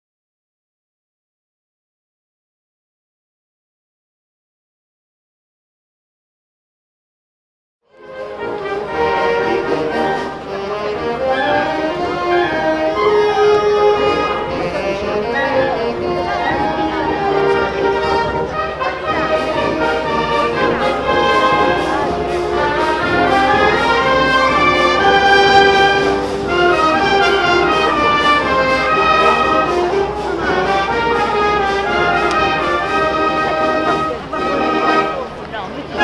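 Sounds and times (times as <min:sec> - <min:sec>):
brass band playing: 0:07.9 - 0:36.0.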